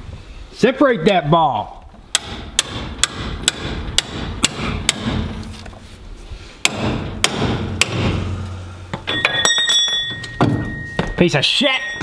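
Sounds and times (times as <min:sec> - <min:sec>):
hammer hitting metal: 0:02.2 - 0:05.4, 0:06.6 - 0:11.2.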